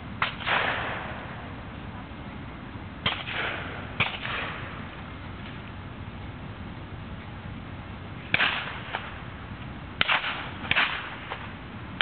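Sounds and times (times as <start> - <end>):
steam engine sharp cracks: 0.2 - 1.2, 3.0 - 4.7, 8.3 - 9.2, 10.0 - 11.5.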